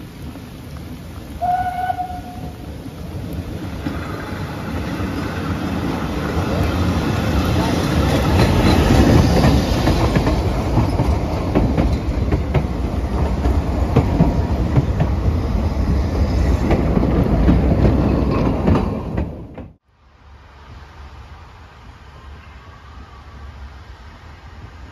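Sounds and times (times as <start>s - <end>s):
train rumbling past: 0.0s - 24.9s
faint hiss: 19.9s - 24.9s.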